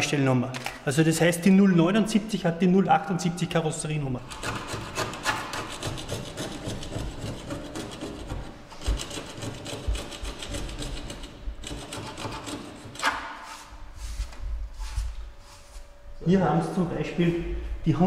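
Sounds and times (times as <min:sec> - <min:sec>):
hand scraper scraping paint: 0:04.2 - 0:15.8.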